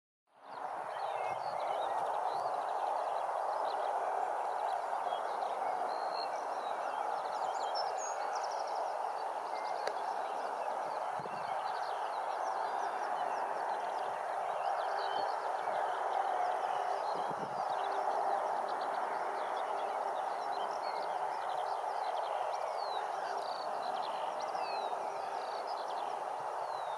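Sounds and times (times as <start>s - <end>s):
birds singing and chirping: 0.5s - 26.9s
steady rushing background noise: 0.5s - 26.9s.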